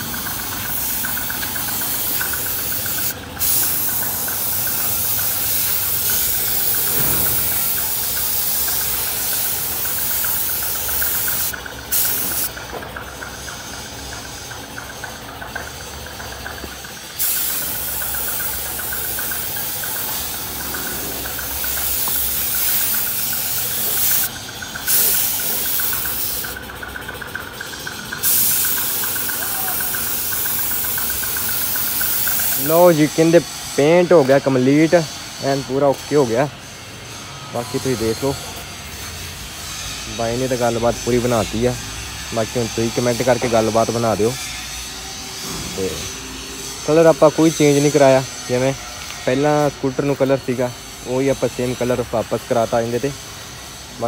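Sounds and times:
paint spray gun hissing: 0:00.0 - 0:36.1
air compressor motor hum: 0:00.0 - 0:54.0.

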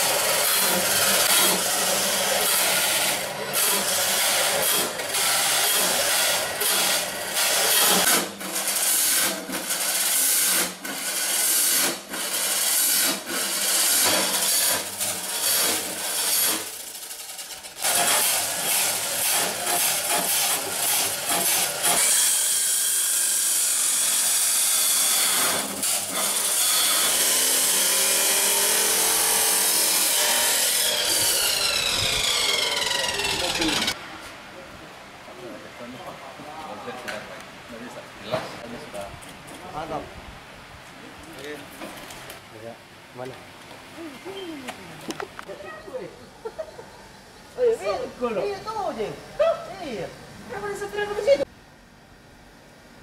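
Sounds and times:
angle grinder grinding metal: 0:00.0 - 0:34.0
grinder whine winding down: 0:29.9 - 0:34.0.

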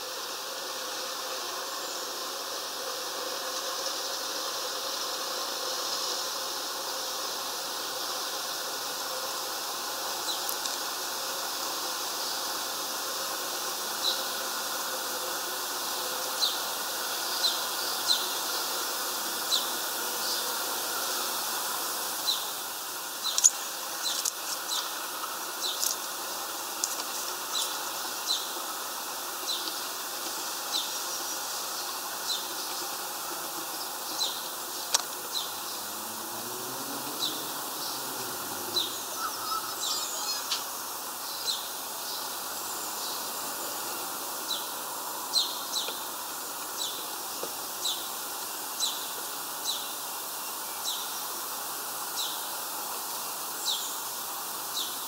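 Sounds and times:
steady outdoor hiss: 0:00.0 - 0:55.0
small bird high chirps: 0:38.8 - 0:40.6.

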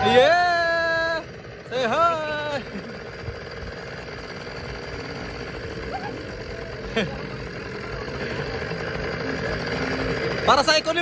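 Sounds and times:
person shouting: 0:00.0 - 0:02.7
engine-like hum: 0:00.0 - 0:11.0.

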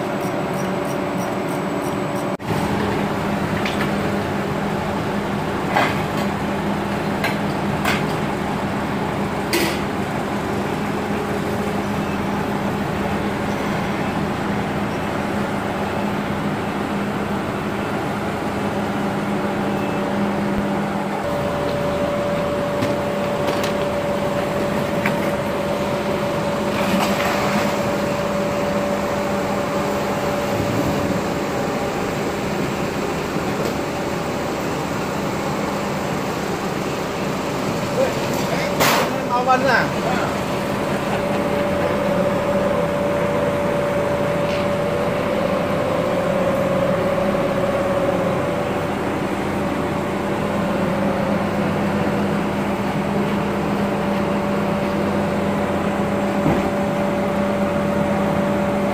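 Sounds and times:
forklift engine running: 0:00.0 - 0:58.9.

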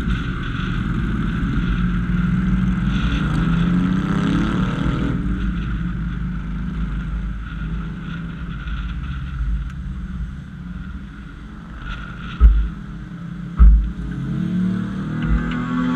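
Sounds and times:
wind buffeting microphone: 0:00.0 - 0:14.2
car engine and road rumble: 0:00.0 - 0:15.9
loud low thumps: 0:13.6 - 0:14.1.

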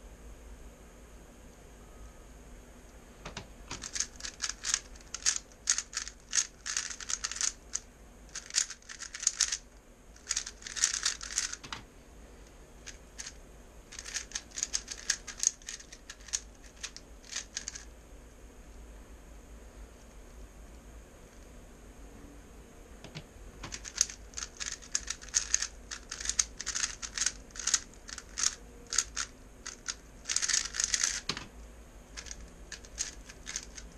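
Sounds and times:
puzzle cube clicking turns: 0:03.3 - 0:09.6, 0:10.2 - 0:11.8, 0:12.8 - 0:17.9, 0:23.1 - 0:31.5, 0:32.2 - 0:33.9.

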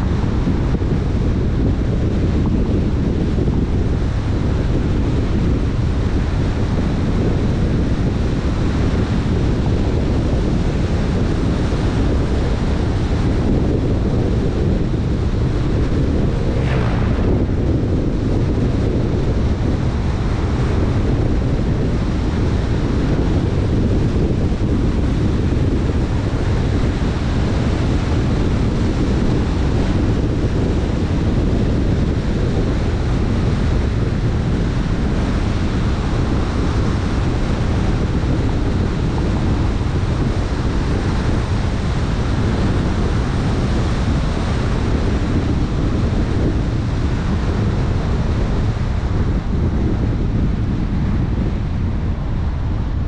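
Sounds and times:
low rushing noise: 0:15.2 - 0:21.1.

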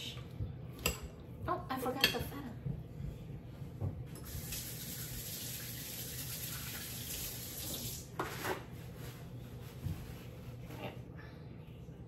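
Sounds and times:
tap water running: 0:04.2 - 0:08.2.

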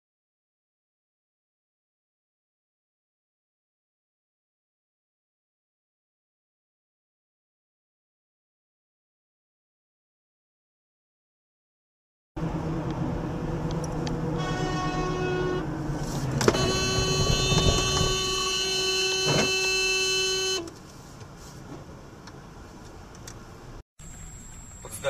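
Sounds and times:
engine and road noise in cabin: 0:12.4 - 0:25.0
car horn blasts: 0:14.4 - 0:15.7, 0:16.4 - 0:20.7.

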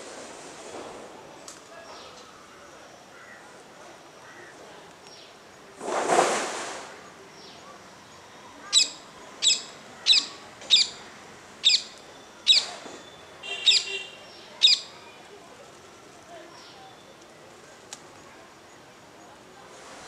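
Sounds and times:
brief rush of noise: 0:05.8 - 0:07.0
parakeet high calls: 0:08.7 - 0:11.0, 0:11.6 - 0:11.9, 0:13.4 - 0:14.9.

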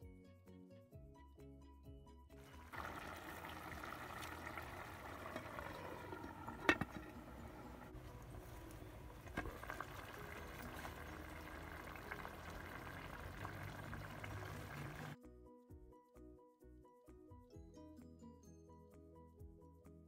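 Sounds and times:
pot bubbling: 0:02.4 - 0:15.2.

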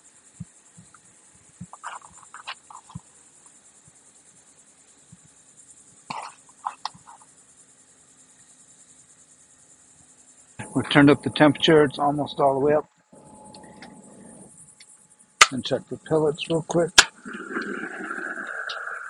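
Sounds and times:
high-pitched insect buzz: 0:00.0 - 0:19.0.

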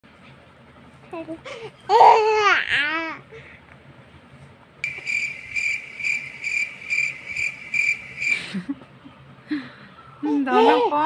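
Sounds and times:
high pulsing trill: 0:04.8 - 0:08.5.

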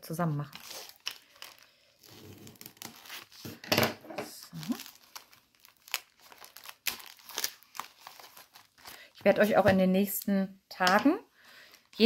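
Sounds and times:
plastic bag crinkling: 0:00.0 - 0:03.6, 0:04.3 - 0:09.7.

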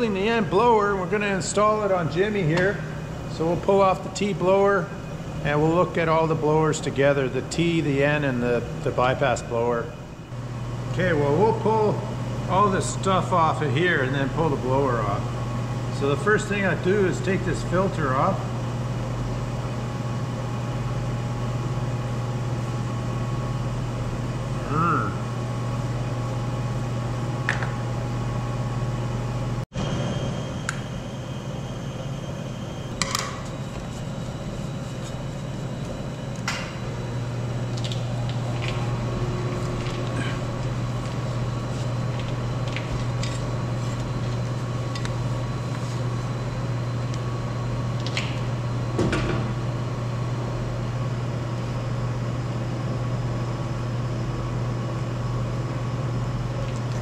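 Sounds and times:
workshop machinery hum: 0:00.0 - 0:57.0.

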